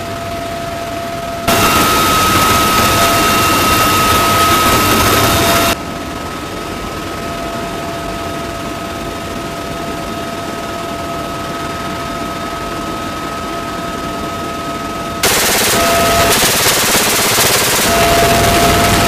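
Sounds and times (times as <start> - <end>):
helicopter engine and rotor noise: 0.0 - 19.0
high whine: 1.5 - 5.8, 15.2 - 19.0
machine gun firing burst: 1.5 - 5.8, 15.2 - 19.0.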